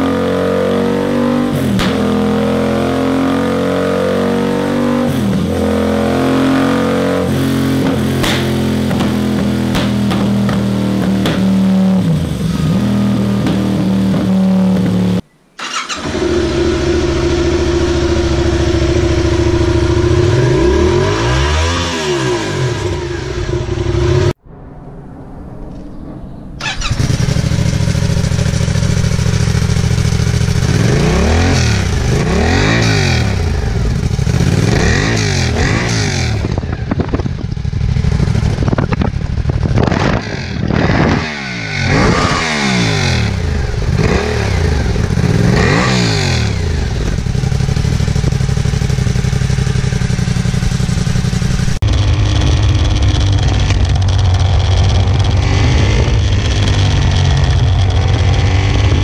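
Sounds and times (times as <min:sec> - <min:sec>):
motorcycle engine idling and revving: 0:00.0 - 0:24.4, 0:26.6 - 0:59.0.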